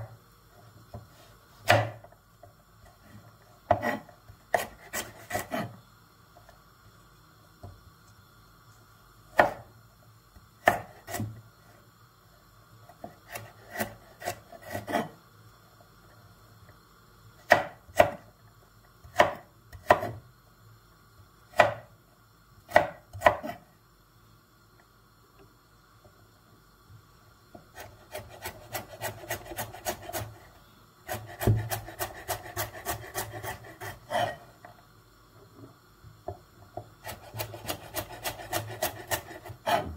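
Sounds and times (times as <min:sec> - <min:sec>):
knife chopping on wooden board: 0:01.6 - 0:02.0, 0:03.7 - 0:05.7, 0:09.4 - 0:09.6, 0:31.1 - 0:34.4, 0:37.0 - 0:39.9.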